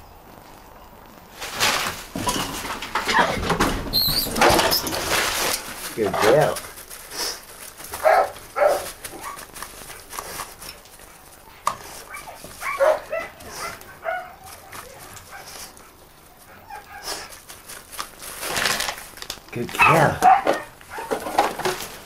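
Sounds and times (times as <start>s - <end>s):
dog yapping and whining: 8.0s - 9.5s, 11.9s - 15.7s, 16.4s - 17.3s, 19.8s - 21.2s.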